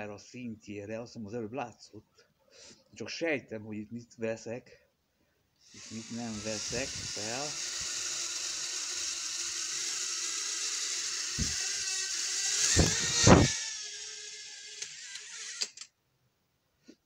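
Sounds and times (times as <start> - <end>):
toy drone rotors whirring: 5.6 - 15.9
loud thumps: 11.3 - 11.8, 12.5 - 13.7.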